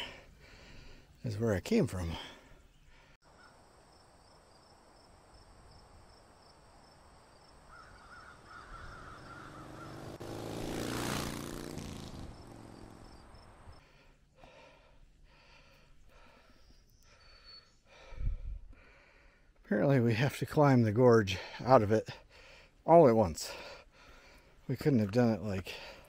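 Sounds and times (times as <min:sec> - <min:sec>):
crow cawing: 0:07.7 - 0:10.2.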